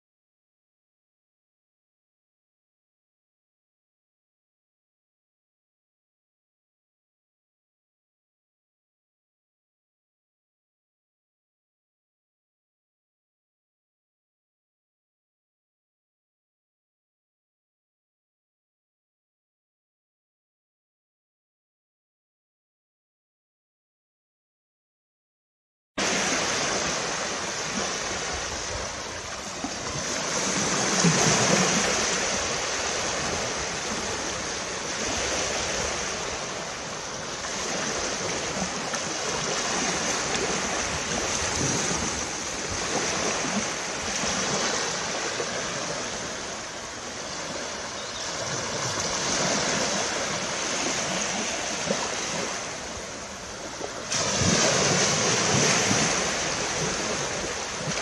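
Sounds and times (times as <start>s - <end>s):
small waves washing on beach: 26.0s - 58.0s.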